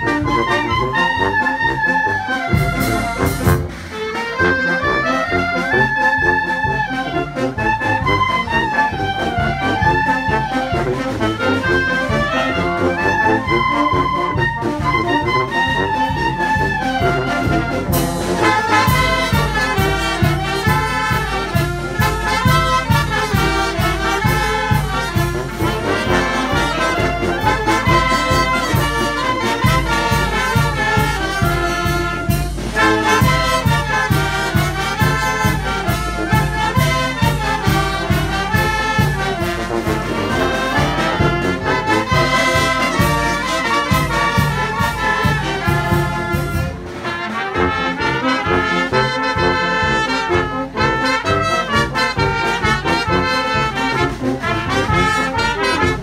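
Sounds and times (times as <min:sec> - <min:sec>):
brass band playing: 0:00.0 - 0:56.0
bass drum and cymbals: 0:02.5 - 0:04.4, 0:15.7 - 0:47.8.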